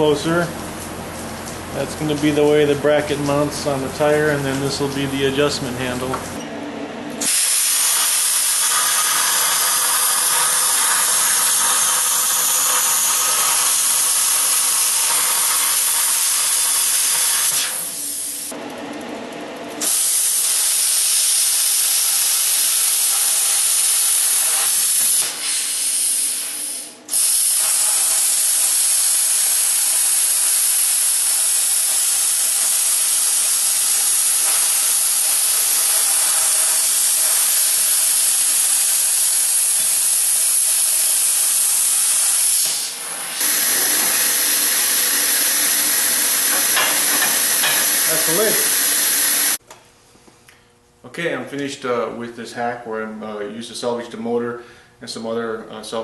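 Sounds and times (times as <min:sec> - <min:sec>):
welder arc hissing: 0:07.2 - 0:18.6, 0:19.8 - 0:49.6.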